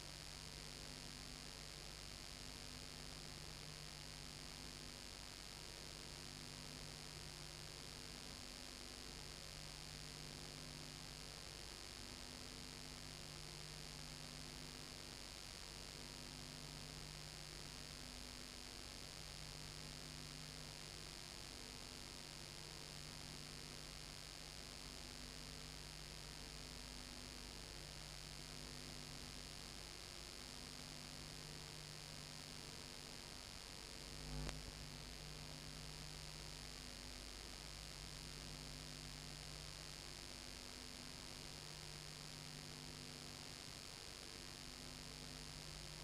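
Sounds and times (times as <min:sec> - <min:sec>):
low electrical hum: 0:00.0 - 0:46.0
faint steady hiss: 0:20.3 - 0:46.0.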